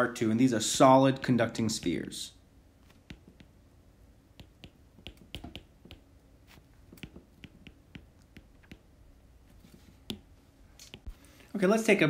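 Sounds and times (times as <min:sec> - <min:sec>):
stylus tapping on glass screen: 0:02.9 - 0:03.6, 0:04.4 - 0:06.1, 0:06.9 - 0:08.9, 0:10.0 - 0:10.3.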